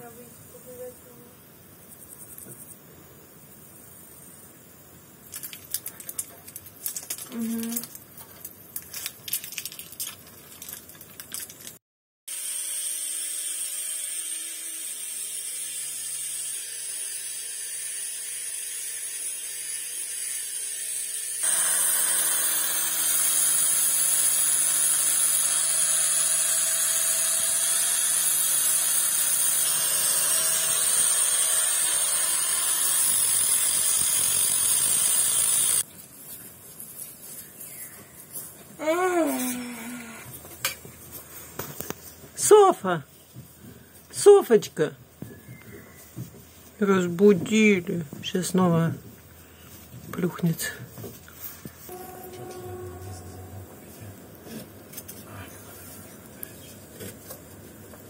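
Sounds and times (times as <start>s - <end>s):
small electric tool running: 12.3s - 35.9s.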